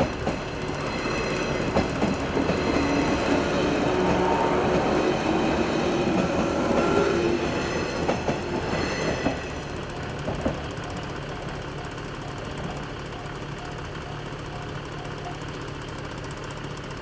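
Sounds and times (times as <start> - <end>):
electric train running: 0.0 - 17.0
wheels clacking over rail joints: 0.0 - 17.0
crossing warning bell ringing: 0.3 - 10.1.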